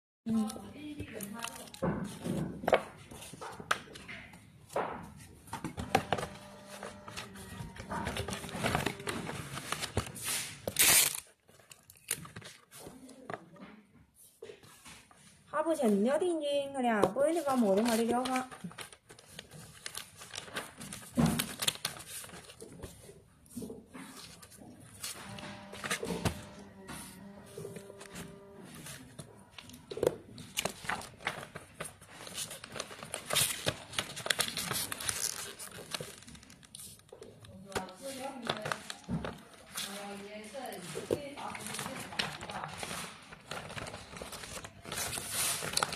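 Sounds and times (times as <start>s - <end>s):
paper label crinkling: 0.3s - 1.9s, 5.8s - 13.4s, 17.4s - 23.1s, 24.0s - 45.9s.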